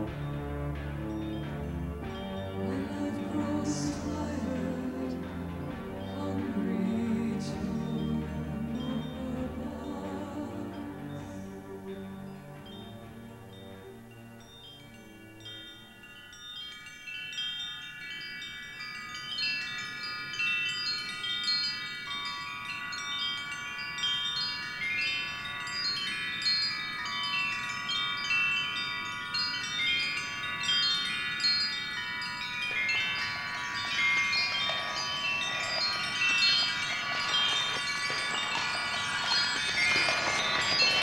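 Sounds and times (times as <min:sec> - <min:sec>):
wind chimes tinkling: 0:00.0 - 0:41.0
rushing noise: 0:32.9 - 0:41.0.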